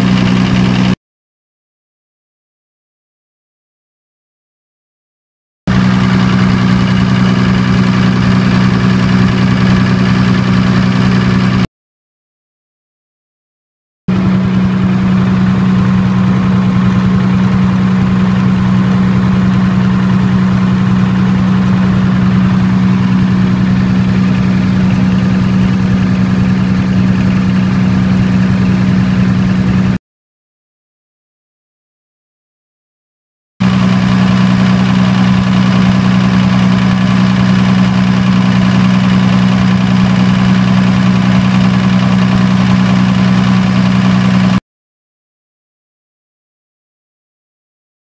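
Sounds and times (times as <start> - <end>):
diesel generator droning: 0.0 - 1.0, 5.7 - 11.7, 14.1 - 30.0, 33.6 - 44.6.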